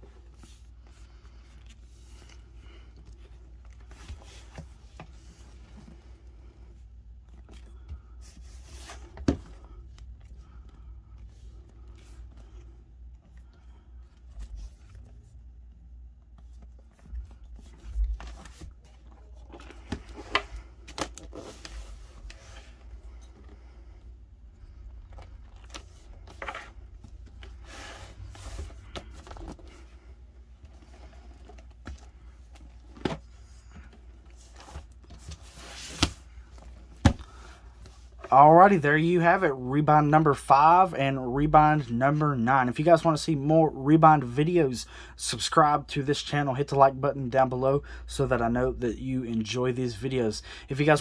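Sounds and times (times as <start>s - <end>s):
books knocking when set down: 37.0s - 37.3s.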